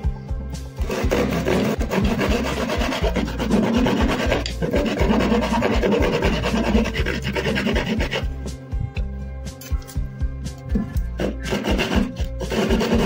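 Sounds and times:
hacksaw rasping through casing: 0:00.8 - 0:08.3, 0:10.8 - 0:13.0.

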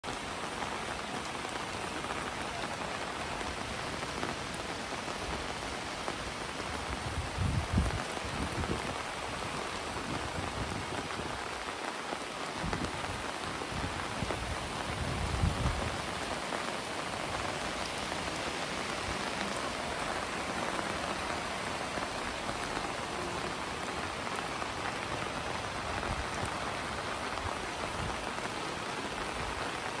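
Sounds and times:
heavy rain on pavement: 0:00.0 - 0:30.0.

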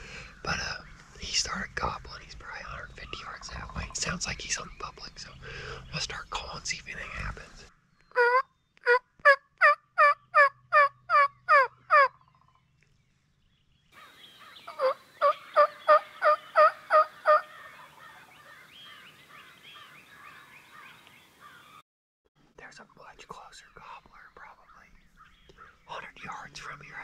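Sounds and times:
turkey yelps on a mouth call: 0:08.2 - 0:12.2, 0:14.7 - 0:18.2.

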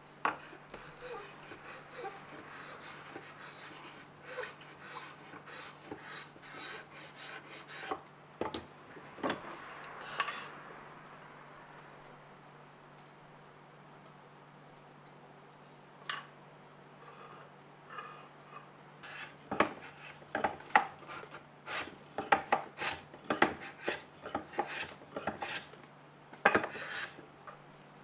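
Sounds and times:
abrasive strokes rasping on wood: 0:00.3 - 0:08.0, 0:19.0 - 0:20.2, 0:26.6 - 0:27.2.

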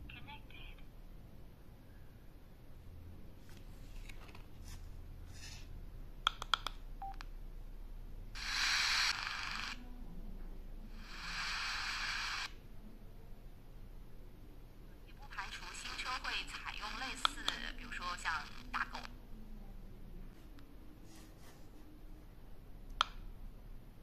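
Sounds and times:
steady hiss: 0:08.4 - 0:09.8, 0:10.9 - 0:12.6.

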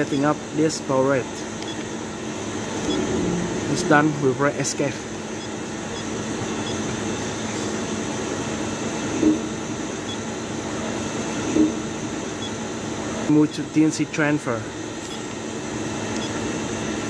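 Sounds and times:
machine shop mechanical hum: 0:00.0 - 0:17.0
short low blips: 0:02.8 - 0:04.2.

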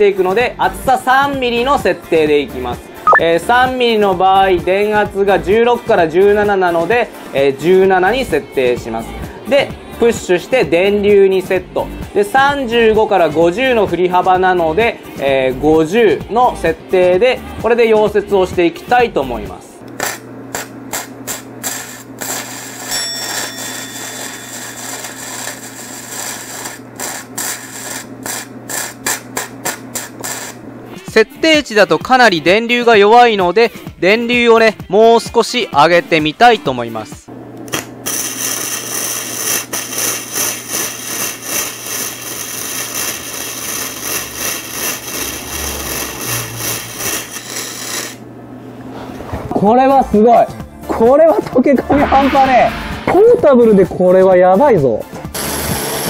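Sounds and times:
welding arc crackling: 0:19.9 - 0:30.6, 0:37.7 - 0:48.2.

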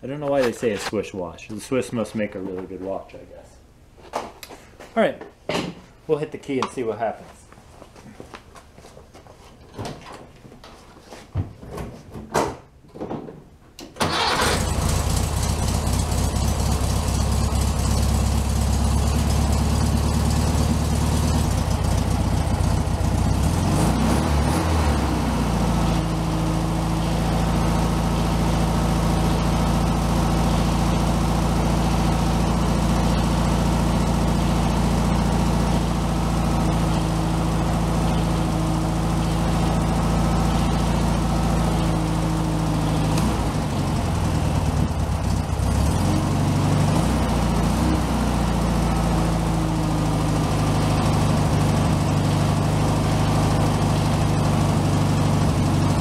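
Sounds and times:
car engine idling: 0:14.1 - 0:56.0.

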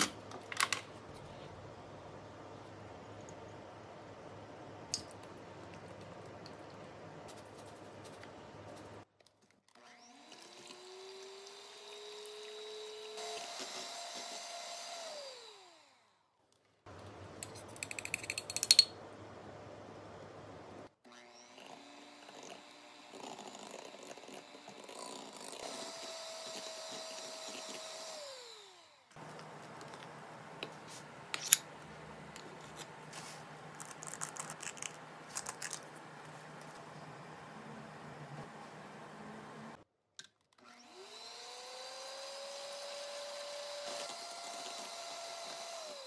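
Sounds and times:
electric hand mixer whirring: 0:09.8 - 0:16.0, 0:21.1 - 0:29.5, 0:40.6 - 0:46.0.

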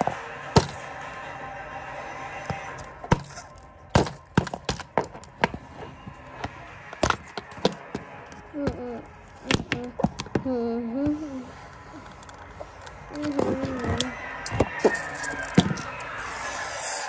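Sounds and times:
wavering voice-like hum: 0:08.4 - 0:12.3, 0:13.0 - 0:17.0.

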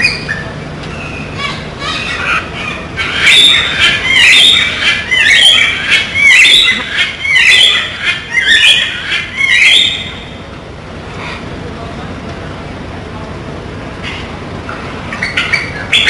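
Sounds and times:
macaw squawking loudly: 0:01.1 - 0:10.2.

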